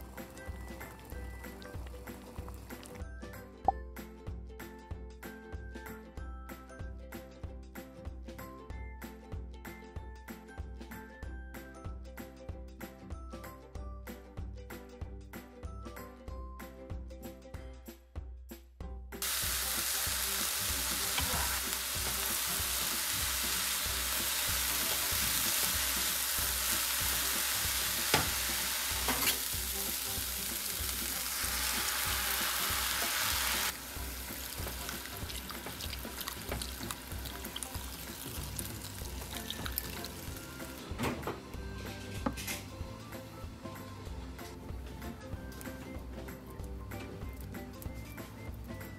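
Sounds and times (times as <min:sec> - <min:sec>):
food sizzling in a frying pan: 0:00.0 - 0:03.0, 0:19.2 - 0:41.0.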